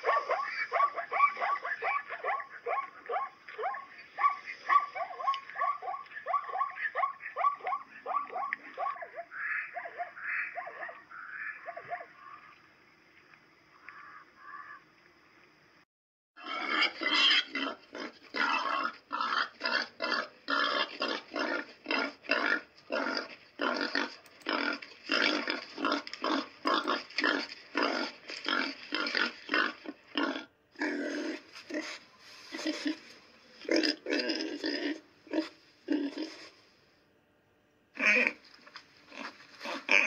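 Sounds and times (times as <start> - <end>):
pig grunting: 16.4 - 36.6, 38.0 - 38.4, 39.1 - 40.0.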